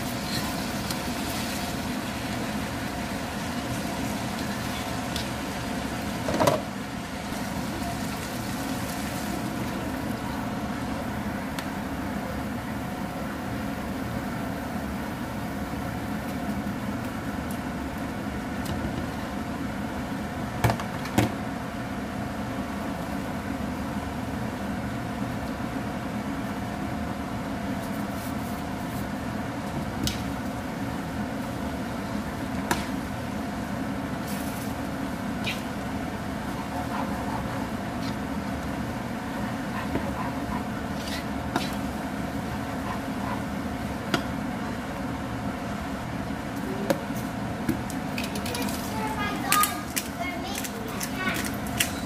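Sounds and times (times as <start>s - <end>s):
steady machine hum: 0.0s - 52.0s.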